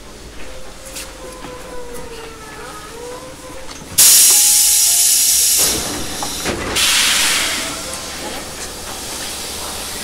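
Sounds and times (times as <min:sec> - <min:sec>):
compressed air hissing from train: 0:04.0 - 0:10.0.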